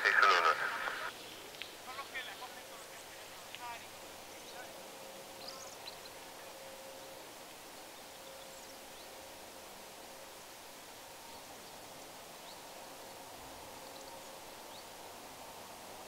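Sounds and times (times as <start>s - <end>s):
steady outdoor hiss: 0.0s - 16.0s
small birds chirping: 0.1s - 6.6s, 7.5s - 9.2s, 11.3s - 15.1s.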